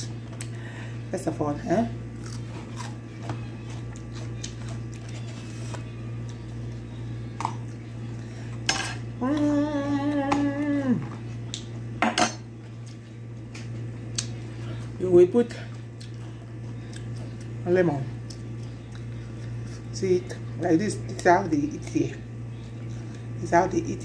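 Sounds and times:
steady low hum: 0:00.0 - 0:24.0
cucumber crunching: 0:02.1 - 0:06.4
woman humming: 0:09.1 - 0:11.4.

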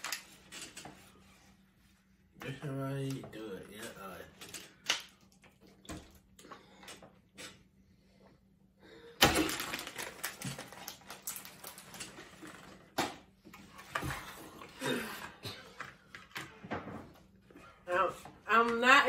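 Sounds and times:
plastic bag crinkling: 0:09.3 - 0:12.8.

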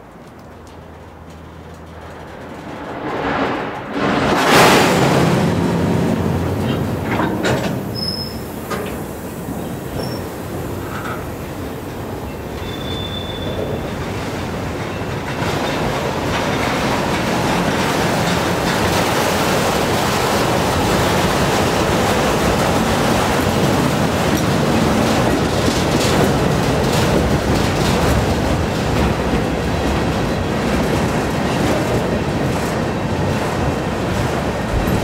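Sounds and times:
train wheels clattering on rails: 0:00.0 - 0:35.0
high squeal: 0:07.9 - 0:08.6, 0:12.3 - 0:13.9.

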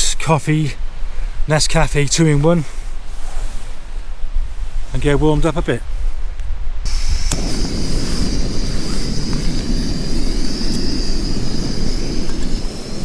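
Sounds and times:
gas burner roaring and hissing: 0:06.9 - 0:13.0.

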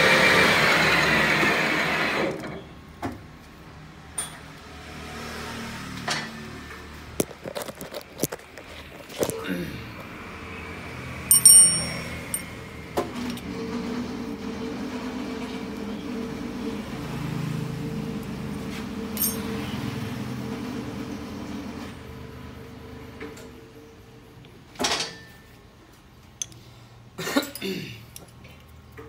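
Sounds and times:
light metal clinks: 0:11.3 - 0:12.5.

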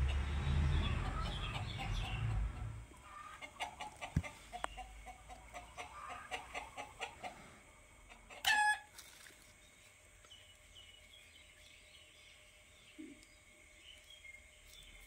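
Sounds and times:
chickens clucking: 0:00.0 - 0:08.9.

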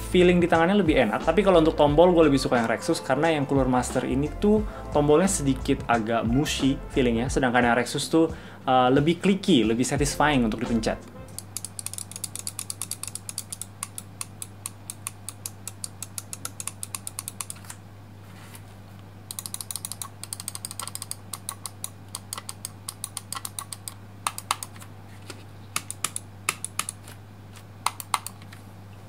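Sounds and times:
mouse buttons clicking: 0:11.3 - 0:17.7, 0:19.3 - 0:24.8, 0:25.8 - 0:27.0, 0:27.8 - 0:28.4.

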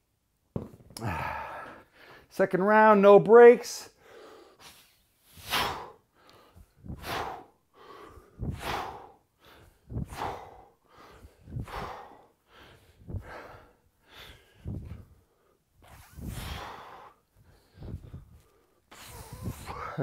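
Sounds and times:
man exhaling forcefully: 0:01.0 - 0:01.9, 0:04.6 - 0:06.0, 0:06.8 - 0:15.0, 0:15.9 - 0:17.2, 0:18.9 - 0:20.0.

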